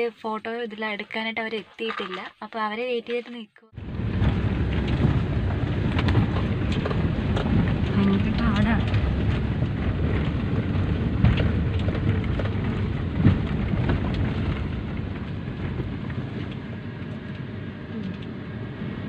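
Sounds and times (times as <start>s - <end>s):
car engine and road rumble: 3.8s - 19.0s.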